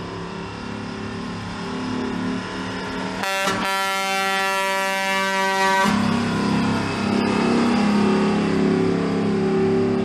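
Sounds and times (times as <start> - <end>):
truck diesel engine pulling away: 0.0 - 3.5, 4.8 - 10.0
truck air horn blast: 3.2 - 6.0.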